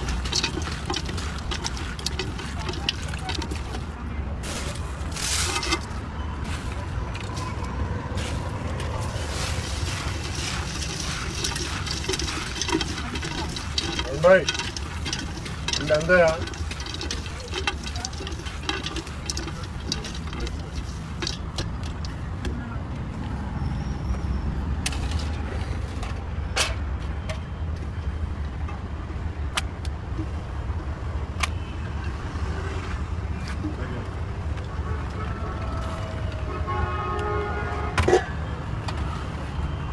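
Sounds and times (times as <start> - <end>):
hand mixing wet food in bowl: 0.0 - 4.0, 5.2 - 6.0, 8.4 - 22.3
utensils and foil trays clinking: 0.0 - 6.0, 9.0 - 22.3
low street noise rumble: 0.0 - 39.9.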